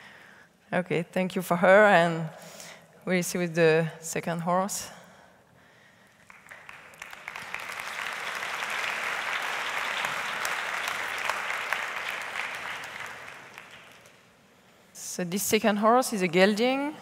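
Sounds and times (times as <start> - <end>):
audience applauding: 6.2 - 14.4.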